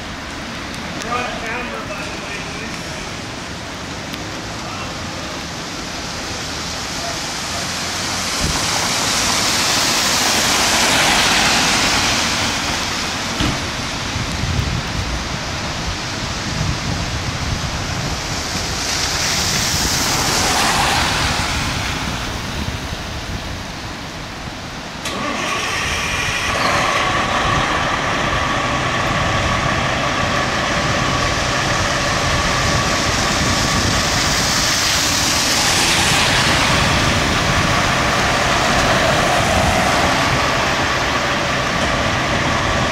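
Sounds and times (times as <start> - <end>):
wet road hiss: 0.0 - 42.9
diesel engines idling: 25.0 - 42.9.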